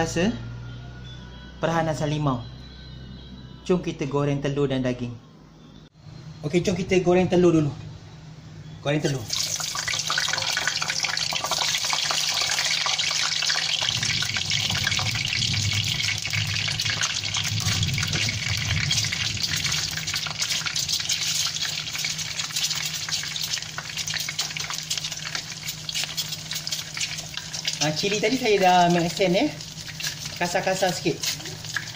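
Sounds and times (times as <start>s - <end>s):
eggs sizzling in hot oil: 9.1s - 31.9s.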